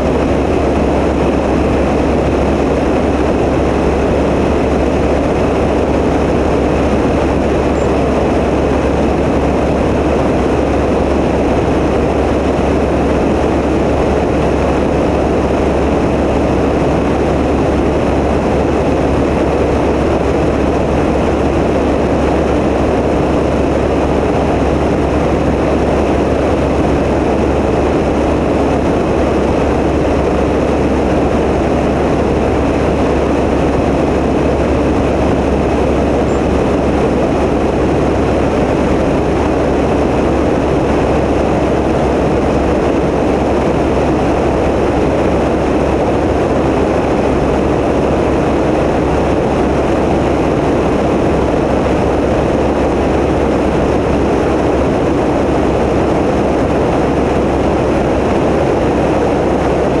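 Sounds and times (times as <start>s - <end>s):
light aircraft engine drone: 0.0s - 60.0s.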